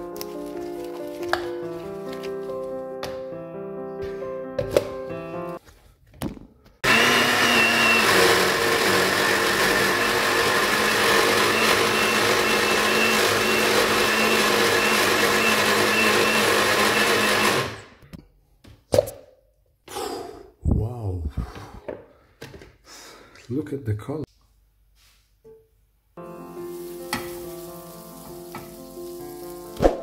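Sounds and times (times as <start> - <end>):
blender motor whine: 6.8 - 18.0.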